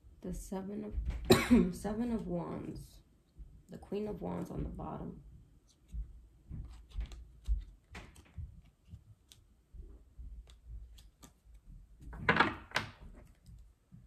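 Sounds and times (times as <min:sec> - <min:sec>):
cards clicking and tapping: 0:05.7 - 0:13.7.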